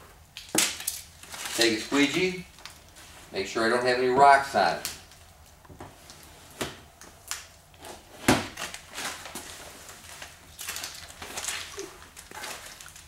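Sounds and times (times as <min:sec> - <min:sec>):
knocks and handling noises: 0:05.6 - 0:07.2.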